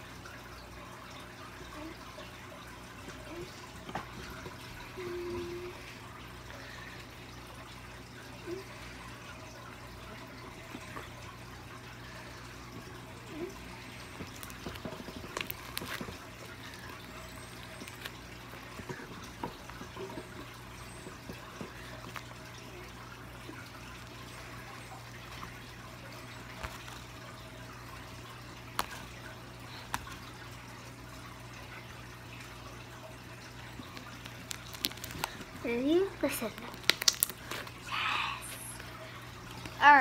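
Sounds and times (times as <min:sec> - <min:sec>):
slime clicking and crackling: 0:14.2 - 0:18.2, 0:33.8 - 0:35.6, 0:36.2 - 0:37.8
slime pops: 0:36.6 - 0:37.6.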